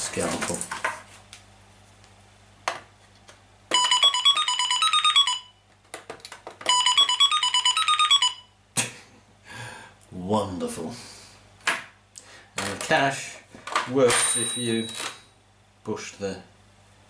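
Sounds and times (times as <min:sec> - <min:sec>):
toy cash register electronic jingle: 0:03.7 - 0:05.5, 0:06.7 - 0:08.5, 0:14.1 - 0:15.2.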